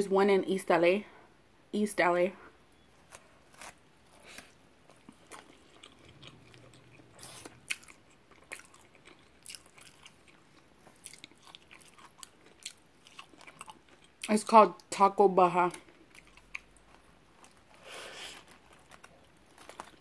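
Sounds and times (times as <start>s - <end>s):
person chewing: 3.0s - 14.4s, 15.7s - 20.0s.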